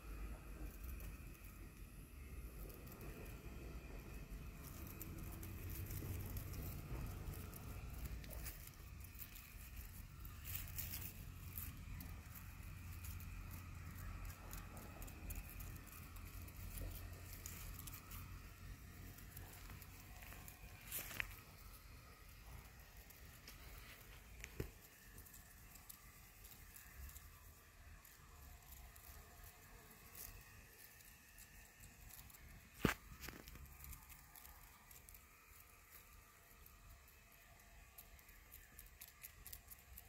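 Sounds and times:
dry grass rustling and crackling: 0.2 - 40.0.

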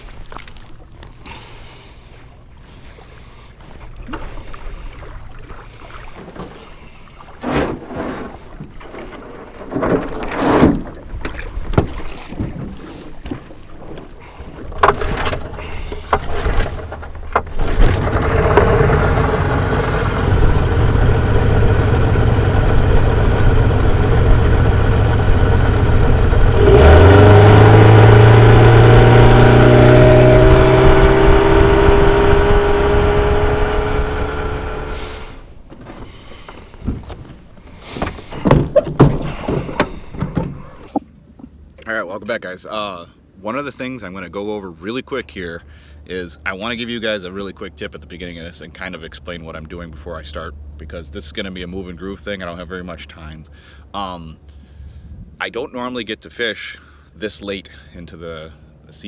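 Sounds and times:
outboard motor running: 0.0 - 41.0
knocks in aluminium boat: 7.4 - 19.0, 36.8 - 41.0.

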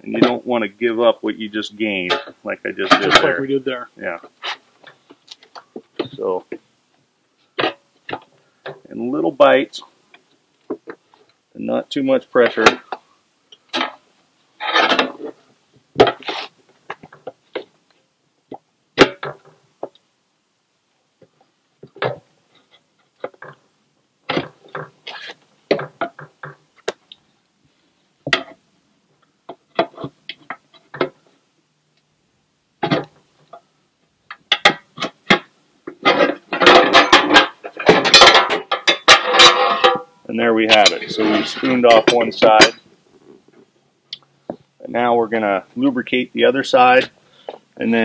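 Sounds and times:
tire levers scraping metal rim: 14.6 - 15.3.

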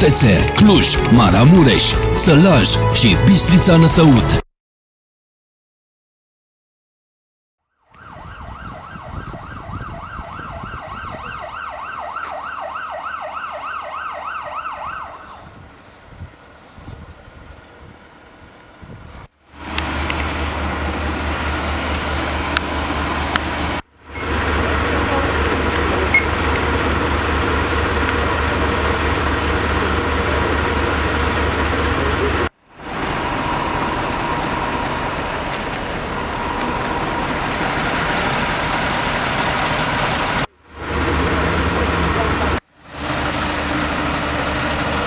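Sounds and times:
fire truck diesel engine idling: 0.0 - 4.4, 19.6 - 45.0.

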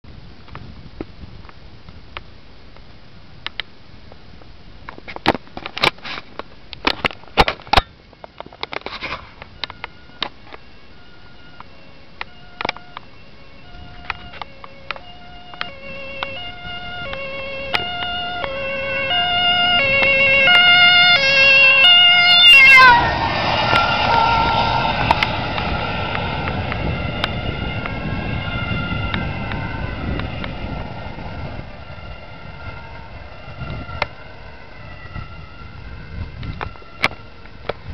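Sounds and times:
ambulance two-tone siren: 8.4 - 37.9
vehicle passing: 9.8 - 37.9.

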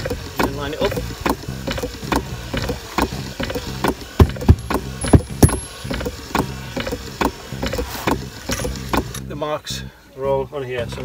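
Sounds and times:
pump knocking: 1.2 - 9.1.

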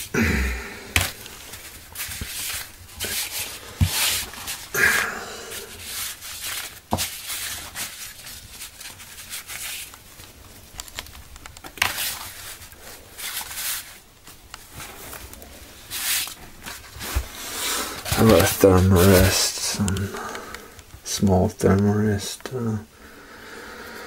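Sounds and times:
gear rustling on fabric: 11.8 - 20.2.

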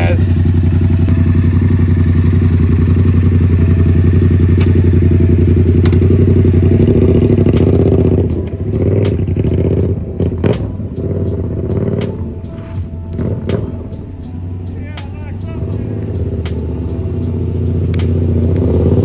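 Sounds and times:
motorcycle engine idling: 0.0 - 19.0
irregular clatter and sharp knocks: 5.8 - 6.2.

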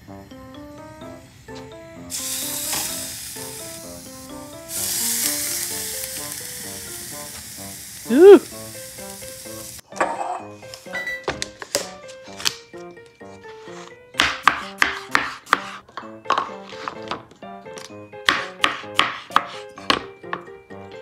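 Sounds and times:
background music: 0.0 - 21.0
fish sizzling on grill: 1.1 - 9.9.

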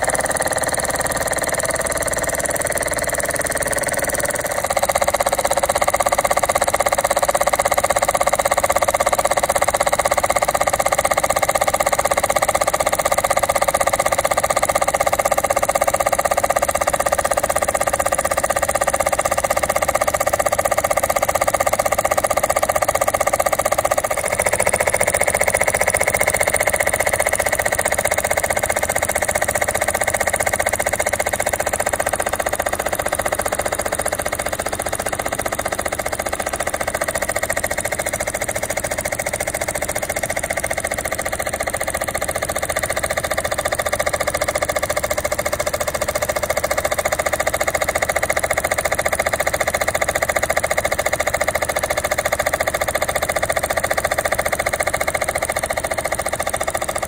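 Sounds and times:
toy steam engine chuffing: 0.0 - 57.0.

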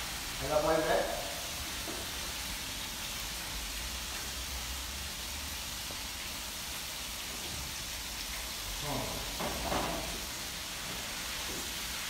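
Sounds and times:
fish frying in oil: 0.0 - 12.0.

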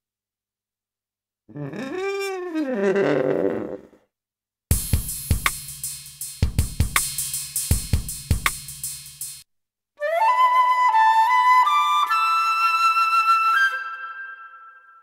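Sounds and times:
drum kit beat: 4.7 - 9.4
flute phrase: 10.0 - 14.4.

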